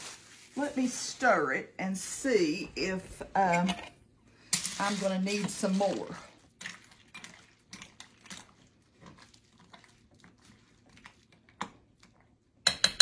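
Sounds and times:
metal spoon stirring soup: 6.5s - 13.0s.

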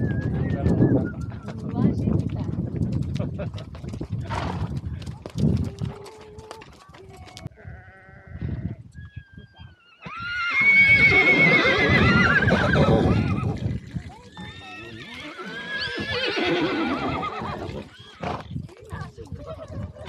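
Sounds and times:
horses whinnying: 9.7s - 18.5s.

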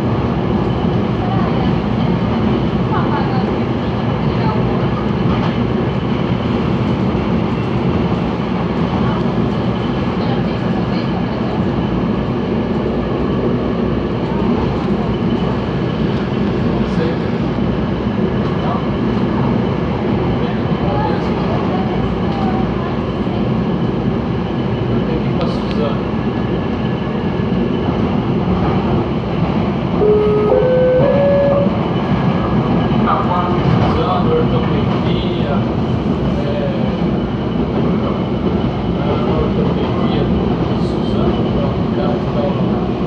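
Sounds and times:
train wheels on rails: 0.0s - 30.0s
train carriage rumble: 0.0s - 43.0s.

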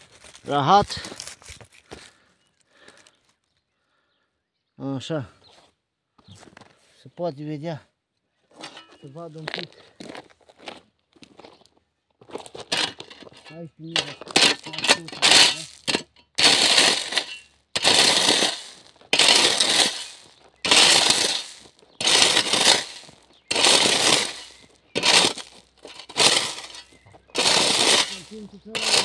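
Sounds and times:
shovel scooping gravel: 8.6s - 9.7s, 12.3s - 29.0s.

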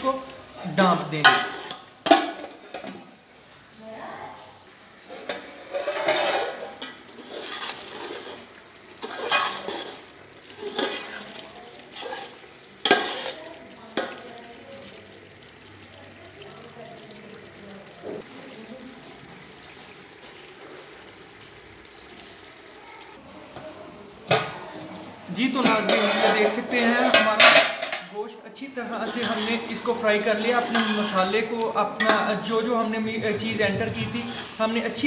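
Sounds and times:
food sizzling: 0.0s - 35.0s
metal spoon scraping a pot: 1.2s - 3.0s, 5.0s - 14.2s, 25.5s - 28.0s, 28.9s - 32.2s, 33.3s - 34.9s.

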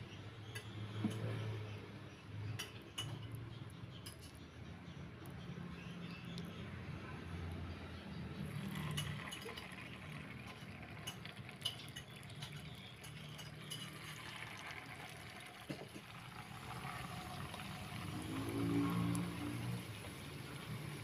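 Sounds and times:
oil sizzling in a frying pan: 8.5s - 21.0s
utensil clinking against pan: 10.9s - 14.5s.

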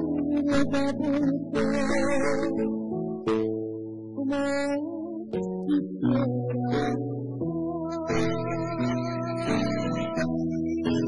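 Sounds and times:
man singing into microphone: 0.0s - 2.7s, 4.2s - 7.0s, 7.8s - 11.0s
backing track sustained chords: 0.0s - 11.0s.

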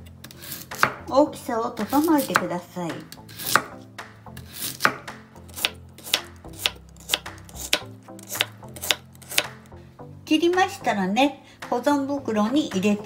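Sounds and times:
knife slicing radish: 0.3s - 1.0s, 1.8s - 2.5s, 3.2s - 9.7s.

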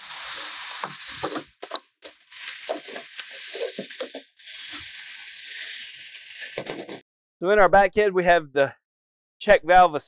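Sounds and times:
steel parts knocking and rubbing: 0.0s - 7.0s.

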